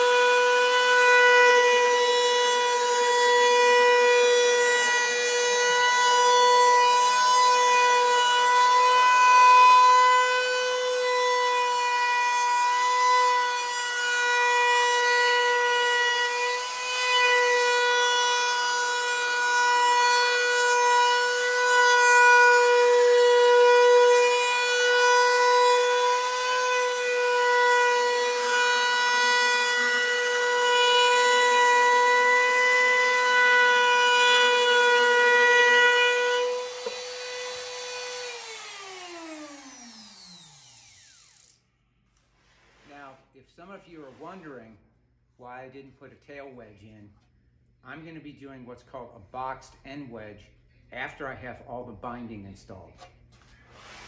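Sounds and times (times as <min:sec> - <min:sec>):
router whining: 0:00.0 - 0:41.6.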